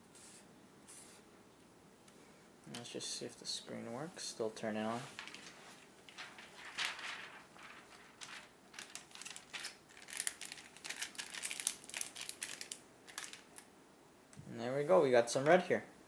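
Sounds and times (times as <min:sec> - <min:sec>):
soft rustling and crinkling: 0:04.0 - 0:13.7.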